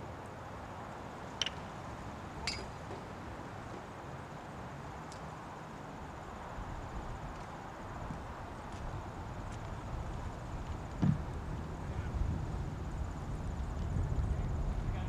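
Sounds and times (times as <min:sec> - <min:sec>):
outdoor hush: 0:00.0 - 0:13.2
hooves drumming on dirt: 0:07.0 - 0:15.0.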